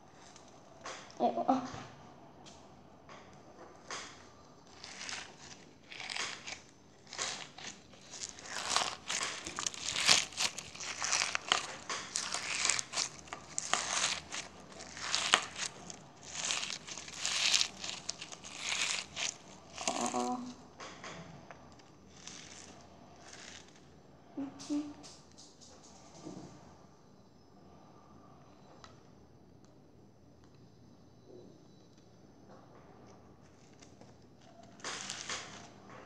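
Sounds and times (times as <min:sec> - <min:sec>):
crunchy slime squeezed: 0:04.6 - 0:20.6, 0:22.1 - 0:23.8, 0:33.6 - 0:35.8.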